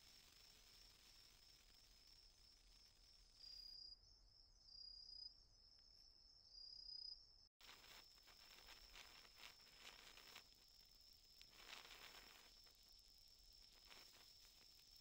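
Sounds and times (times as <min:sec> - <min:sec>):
sparkler crackling softly: 0:00.0 - 0:03.6, 0:07.6 - 0:15.0
high insect trill: 0:00.0 - 0:05.4, 0:06.4 - 0:15.0.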